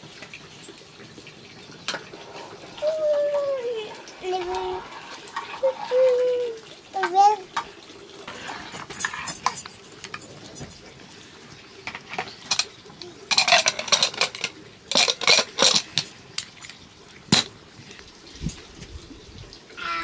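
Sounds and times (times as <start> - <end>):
metal utensils clinking on dishes: 8.3 - 10.9, 11.8 - 16.1.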